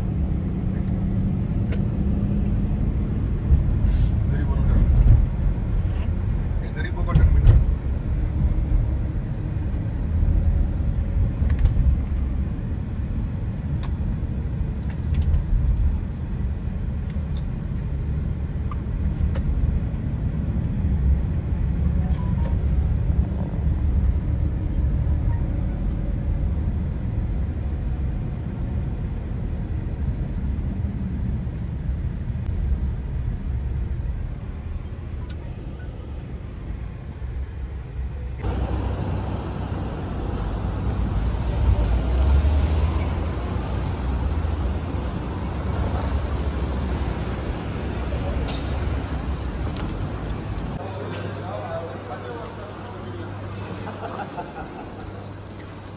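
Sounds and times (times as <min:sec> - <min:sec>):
motor vehicle rumble: 0:00.0 - 0:55.9.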